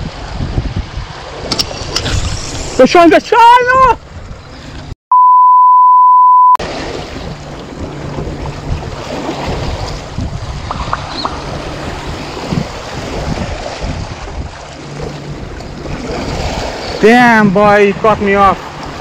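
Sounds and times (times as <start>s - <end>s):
wind on the microphone: 0.0s - 2.9s, 6.9s - 19.0s
censor bleep: 5.1s - 6.6s
sea water washing against rocks: 6.6s - 19.0s.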